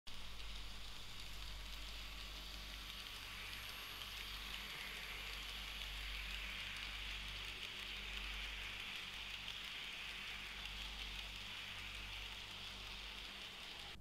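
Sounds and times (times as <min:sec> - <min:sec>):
low steady hum: 0:00.1 - 0:14.0
model train wheels on rails: 0:00.1 - 0:14.0.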